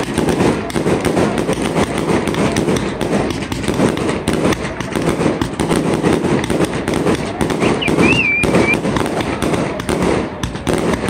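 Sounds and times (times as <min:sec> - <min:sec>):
fireworks popping and crackling: 0:00.0 - 0:11.0
wavering firework whistle: 0:07.5 - 0:08.8.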